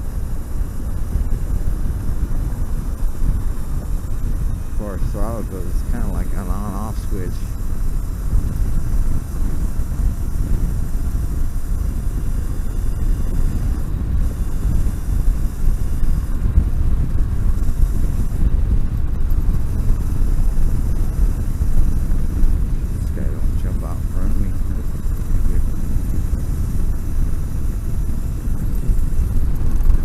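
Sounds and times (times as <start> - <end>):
road noise: 0.0 - 30.0
wind buffeting microphone: 0.0 - 30.0.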